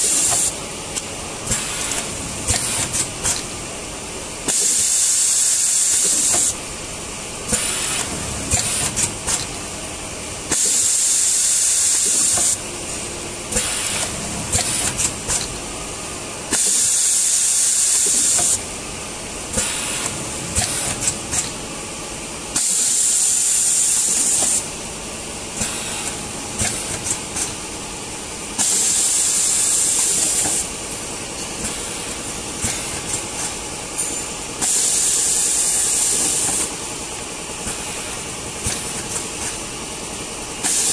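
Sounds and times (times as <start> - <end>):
machine clicks and clatter: 0.0 - 3.6, 4.4 - 6.7, 7.5 - 9.7, 10.5 - 15.7, 16.5 - 18.7, 19.5 - 21.7, 22.5 - 24.7, 25.5 - 40.9
compressed air hiss: 13.5 - 15.4, 19.5 - 21.2.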